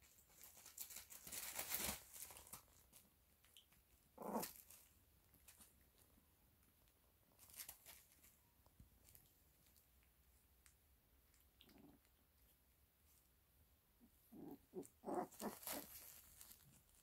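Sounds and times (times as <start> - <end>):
puppies scuffling on a bed: 0.1 - 3.0, 15.2 - 17.0.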